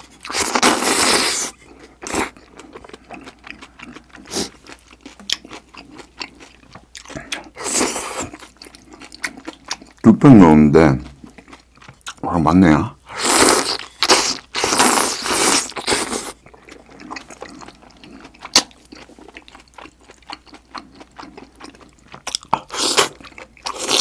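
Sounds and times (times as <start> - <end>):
chewing: 0.2 - 10.0, 11.0 - 12.2, 14.9 - 24.0.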